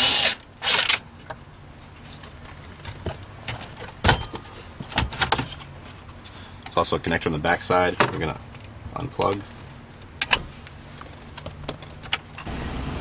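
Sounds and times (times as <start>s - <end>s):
power drill whirring: 0.0s - 1.0s.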